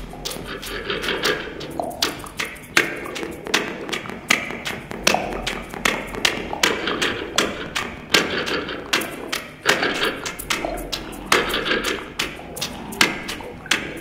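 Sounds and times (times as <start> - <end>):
noisy mid-range wash: 0.0 - 14.0
sewing machines thumping rhythmically: 0.0 - 14.0.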